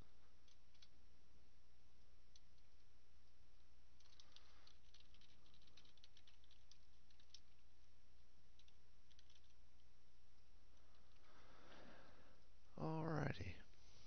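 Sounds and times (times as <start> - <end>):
steady low hum: 0.0 - 14.0
computer keyboard typing: 4.0 - 7.7, 8.6 - 9.6.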